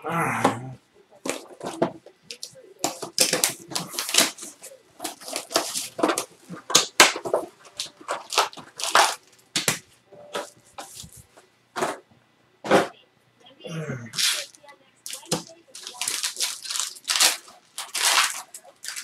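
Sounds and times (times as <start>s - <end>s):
cards being handled: 1.2s - 11.4s, 14.2s - 19.0s
packaging torn and crinkled: 2.3s - 9.7s, 14.2s - 19.0s.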